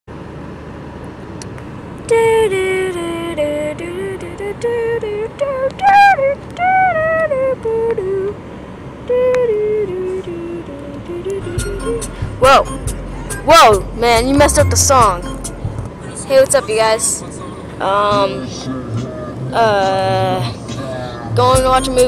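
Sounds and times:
car interior rumble: 0.1 - 22.0
person singing slow melody: 17.2 - 22.0.

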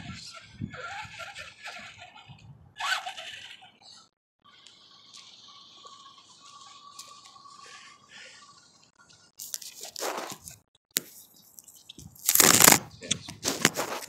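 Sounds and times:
microphone rubbing and scraping: 9.4 - 11.2, 11.8 - 14.0.

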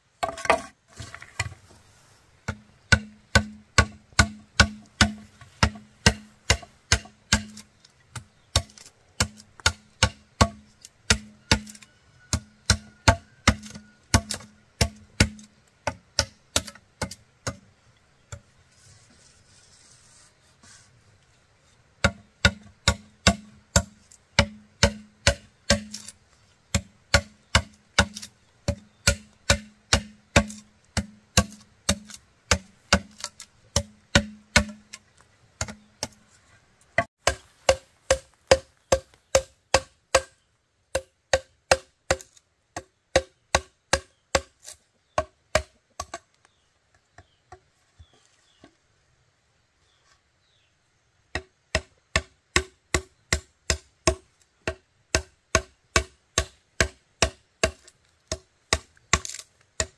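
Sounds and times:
chopping blows on bamboo: 2.4 - 17.7, 22.0 - 35.0, 35.6 - 36.3, 37.0 - 46.2, 51.3 - 59.9.

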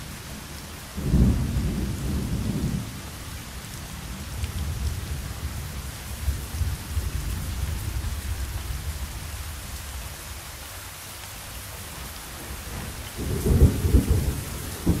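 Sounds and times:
steady rain: 0.0 - 15.0
rolling thunder: 1.0 - 9.8, 12.7 - 15.0.

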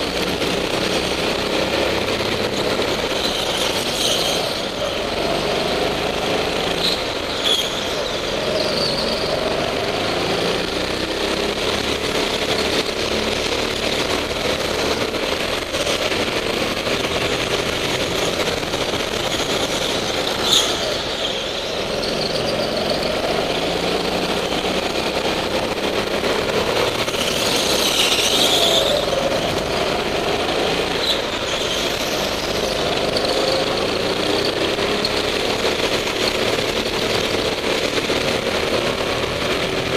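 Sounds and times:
go-kart engines revving: 0.0 - 39.9
tyres squealing on concrete: 3.0 - 5.2, 6.1 - 9.4, 18.1 - 26.0, 26.6 - 37.5.

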